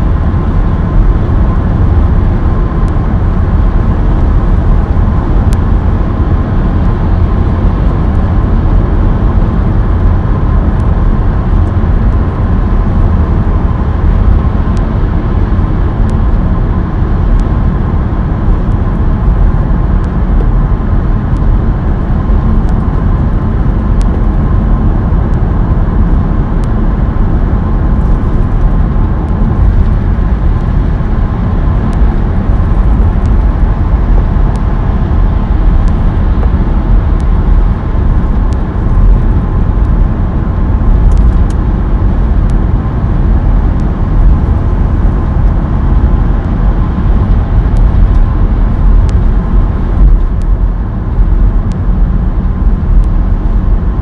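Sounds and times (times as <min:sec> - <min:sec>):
car road noise from cabin: 0:00.0 - 0:54.0.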